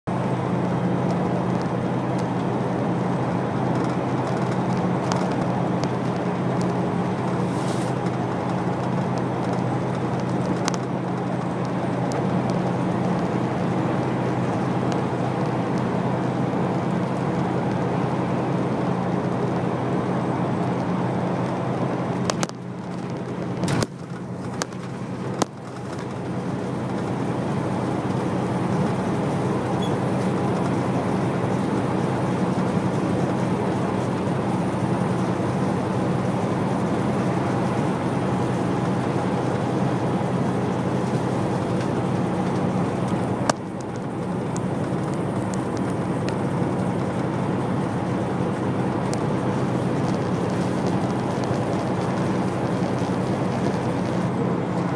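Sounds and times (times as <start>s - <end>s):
road noise inside vehicle: 0.0s - 54.9s
vehicle engine hum: 0.0s - 54.9s.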